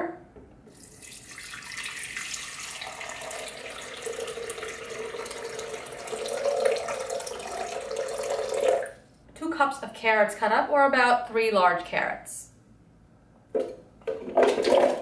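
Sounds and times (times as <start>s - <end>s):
water pouring into plastic jar: 0.7s - 9.0s.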